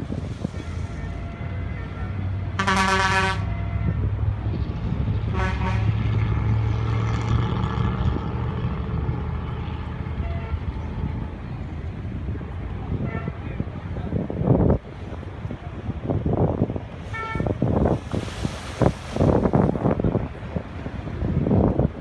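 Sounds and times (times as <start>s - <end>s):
horn blasts: 0.6s - 4.0s, 5.3s - 6.0s.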